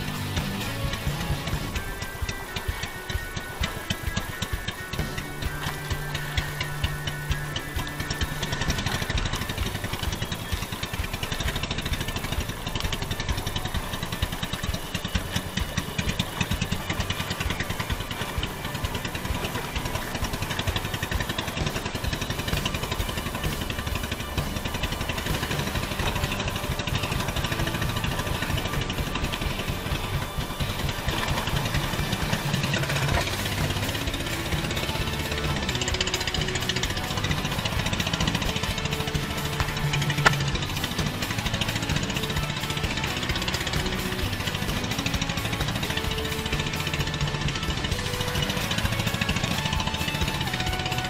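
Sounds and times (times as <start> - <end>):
small boat engine running: 0.0 - 51.0.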